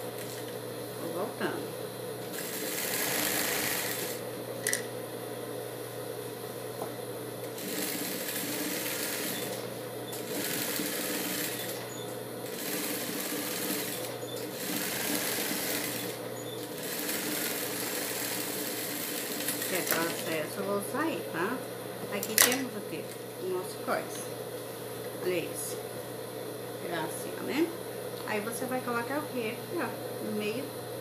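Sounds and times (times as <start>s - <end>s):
sewing machine motor humming: 2.3s - 4.2s, 7.4s - 20.5s
sewing machine stitching: 2.3s - 4.2s, 7.6s - 20.3s.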